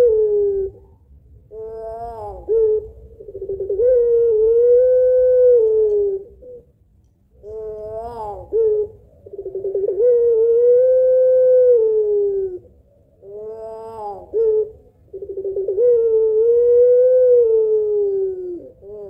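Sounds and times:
dove cooing: 0.0 - 19.0.

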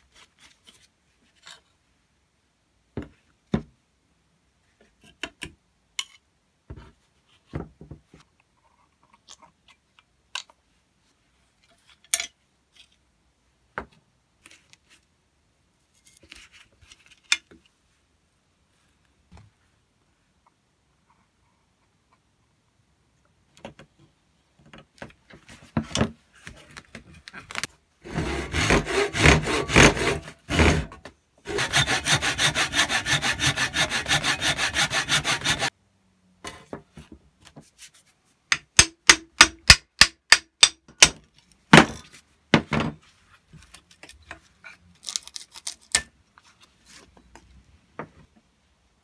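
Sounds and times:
sanding strokes on cast iron: 31.5 - 35.7.

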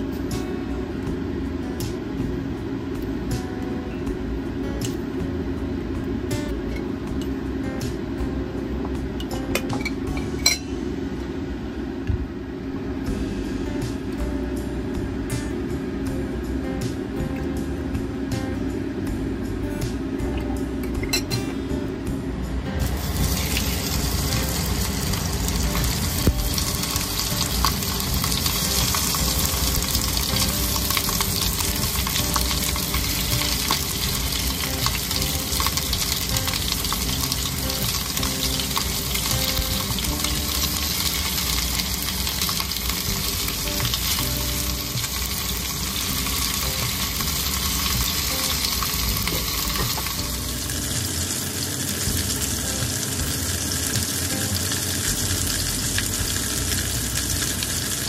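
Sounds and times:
food sizzling in hot pan: 22.8 - 58.0.

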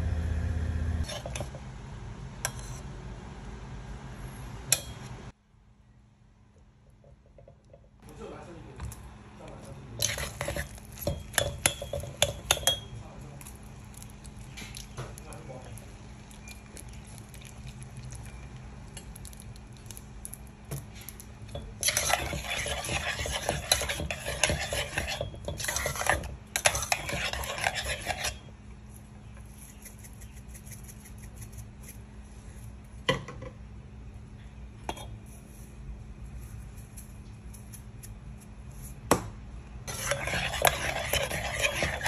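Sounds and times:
metal spoon scraping saucepan: 1.0 - 1.5, 2.4 - 2.8, 10.0 - 12.9, 21.5 - 28.5, 39.9 - 42.0.

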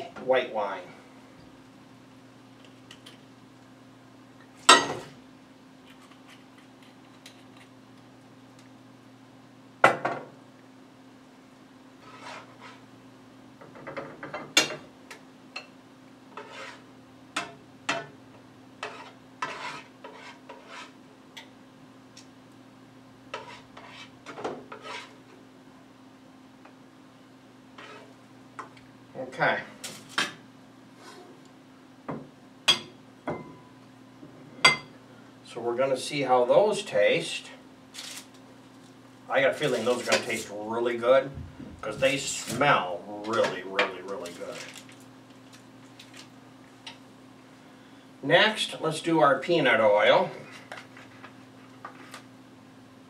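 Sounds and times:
utensil scraping in skillet: 12.0 - 12.9, 16.3 - 16.9, 18.8 - 21.0, 23.3 - 25.3, 27.7 - 28.2.

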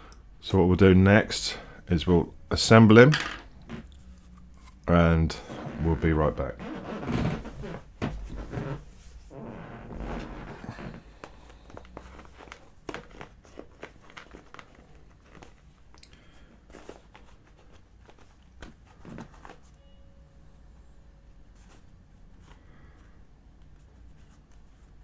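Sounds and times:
soft rustle: 5.4 - 20.0, 21.4 - 25.0.

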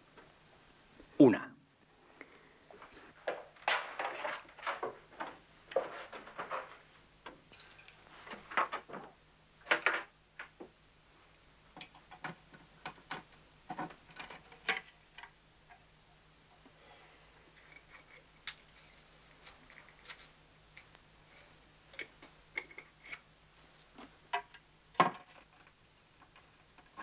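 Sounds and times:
clothes and hangers rummaged: 2.8 - 10.1, 17.5 - 20.4.

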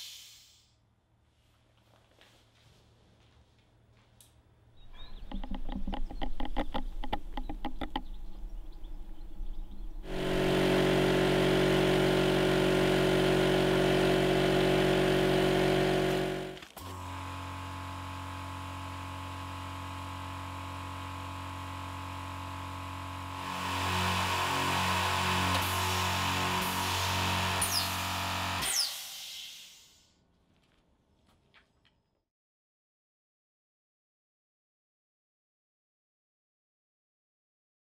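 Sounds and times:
quiet air compressor hum: 8.4 - 31.4
loud piston air compressor: 10.0 - 30.1.

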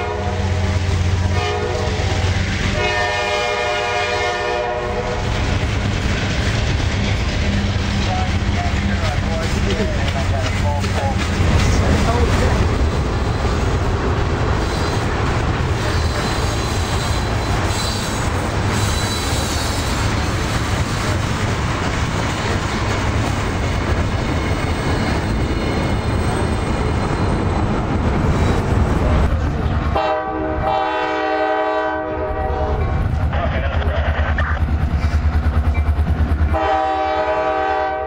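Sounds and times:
locomotive air horn chord: 0.0 - 5.2, 30.0 - 32.9, 36.5 - 38.0
train wheels rumbling on rail: 0.0 - 38.0.

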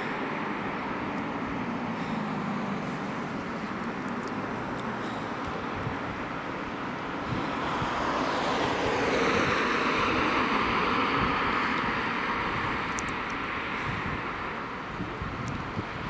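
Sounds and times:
car passing by: 0.0 - 16.0
wind on microphone: 5.4 - 16.0.

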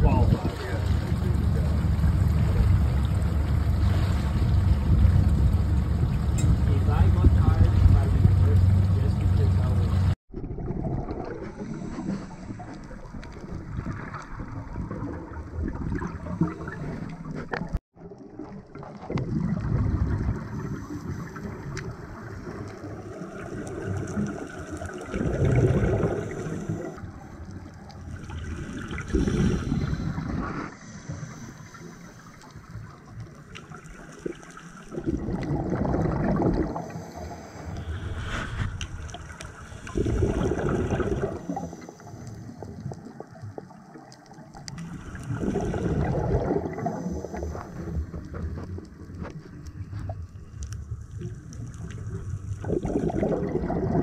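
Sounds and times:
exhaled bubbles underwater: 0.0 - 8.4, 10.3 - 54.0
steady water hiss: 20.2 - 54.0.

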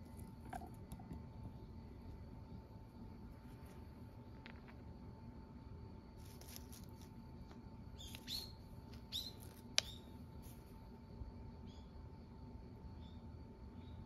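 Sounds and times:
faint garden background: 0.0 - 14.0
small bird chirping: 7.9 - 10.6, 11.6 - 12.0.

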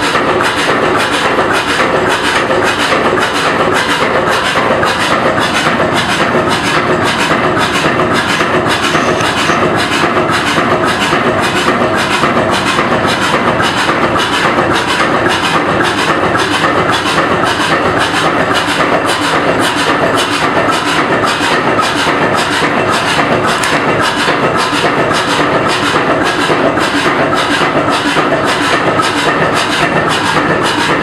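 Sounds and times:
marine engine clattering: 0.0 - 31.0.

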